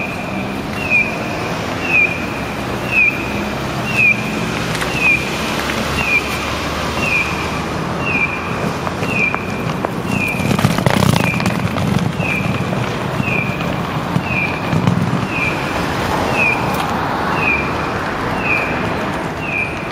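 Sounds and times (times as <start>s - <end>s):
crossing signal electronic chirp: 0.0s - 5.4s, 6.0s - 10.5s, 11.1s - 12.6s, 14.2s - 15.7s, 16.3s - 16.7s, 17.3s - 17.8s, 18.4s - 18.7s
low traffic rumble: 0.0s - 19.9s.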